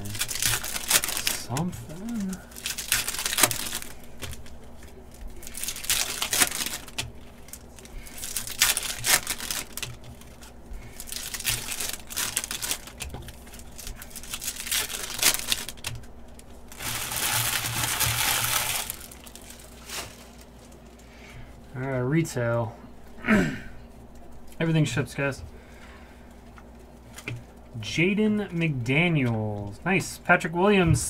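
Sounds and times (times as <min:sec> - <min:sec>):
foil wrappers crinkling and tearing: 0:00.0 - 0:21.9.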